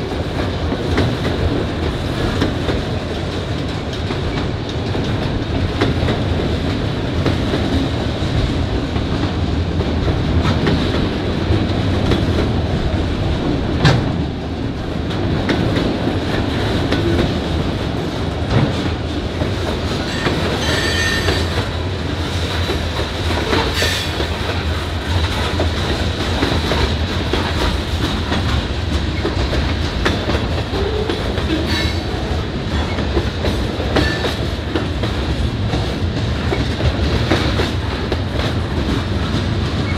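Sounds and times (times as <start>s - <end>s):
freight train rumbling: 0.0s - 39.9s
high wheel squeals: 20.1s - 21.5s.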